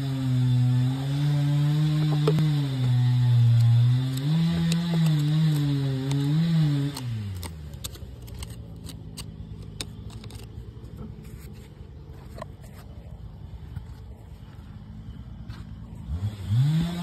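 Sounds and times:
engine low hum: 0.0 - 17.0
metal tool scraping rock: 2.0 - 13.0.

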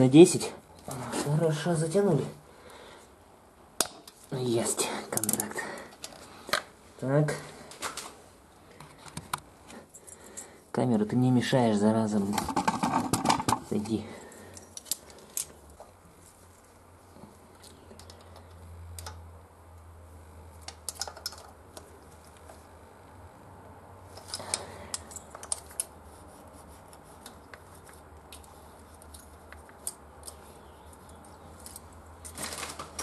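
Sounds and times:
metallic clicks of hand tools: 20.6 - 21.9.

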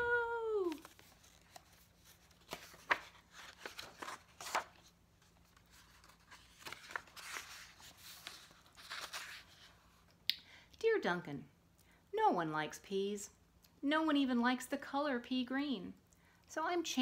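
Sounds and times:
paper rustling: 0.7 - 10.0
book page turning clicks: 2.4 - 4.7.

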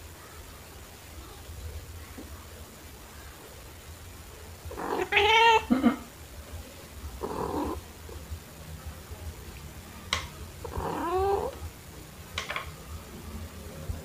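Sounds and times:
cat meowing: 4.7 - 5.7, 7.2 - 7.8, 10.6 - 11.6.

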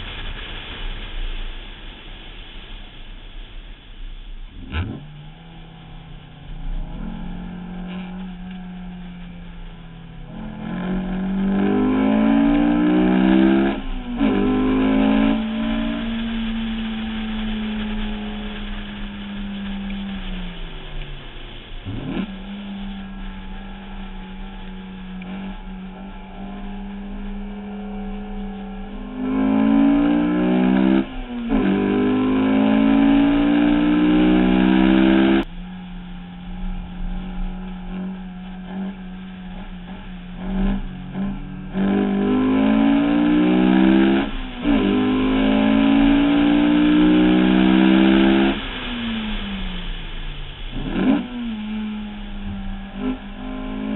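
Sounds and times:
car engine revving: 4.0 - 53.9.

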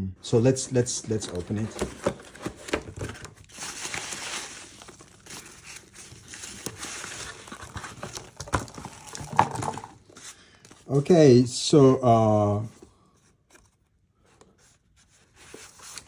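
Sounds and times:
rustling foam packing peanuts: 1.0 - 11.1.

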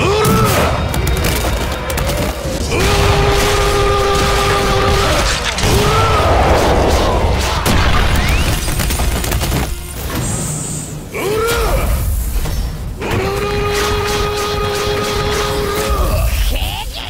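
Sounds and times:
crash: 0.5 - 10.9
long held battle shout: 2.6 - 7.7.

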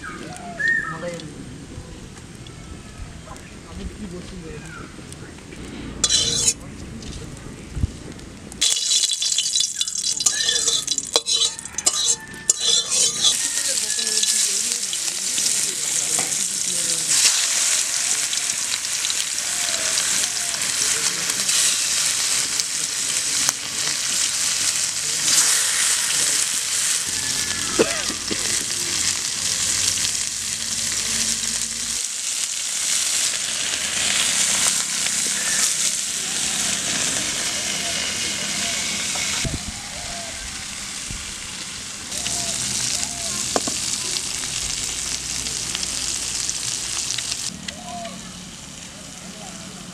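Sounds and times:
pumpkin sizzling in hot oil: 6.0 - 6.6, 8.6 - 48.0.

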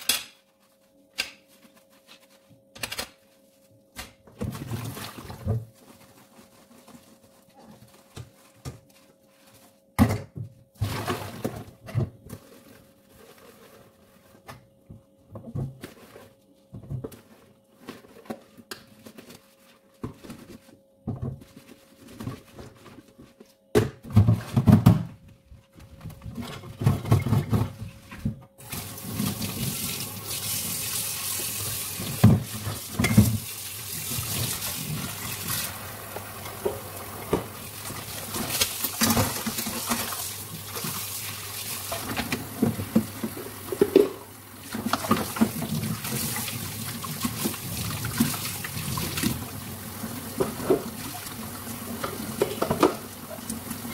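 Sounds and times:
sponge scrubbing: 4.6 - 9.8
cookware clattering against sink: 52.0 - 53.0.

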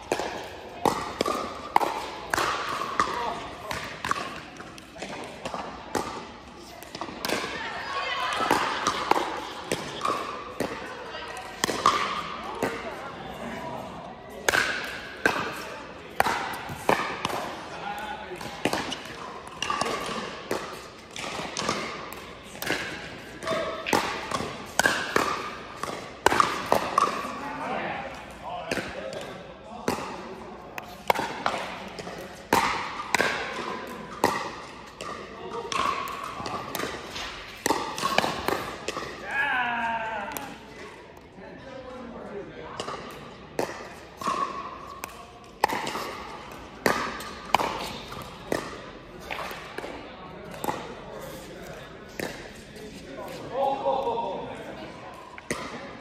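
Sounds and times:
paddles hitting plastic ball: 0.0 - 6.2, 29.9 - 39.4, 42.8 - 50.8.

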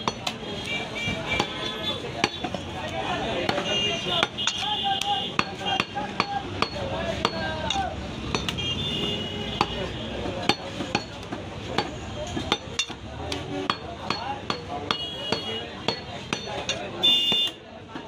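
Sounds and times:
cleaver knocking on wooden block: 5.3 - 8.6, 10.4 - 13.0, 13.7 - 16.8.

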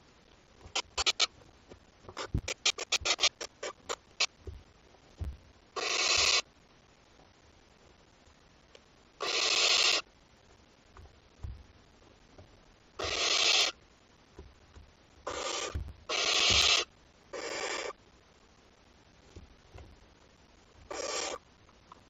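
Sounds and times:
owl chicks hissing: 0.7 - 1.4, 2.2 - 4.3, 5.8 - 6.4, 9.2 - 10.0, 13.0 - 13.8, 15.2 - 18.0, 20.9 - 21.4
faint shuffling thumps: 1.4 - 3.2, 4.4 - 5.5, 11.0 - 11.7, 15.7 - 16.6.

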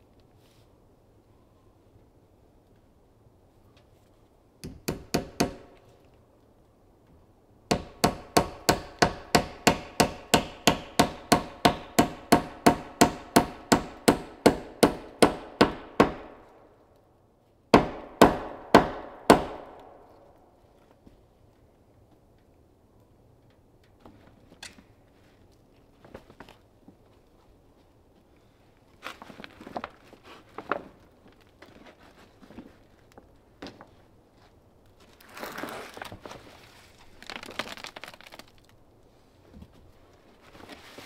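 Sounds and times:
hammer driving nails into wood: 4.6 - 5.8, 7.7 - 16.5, 17.7 - 20.1.

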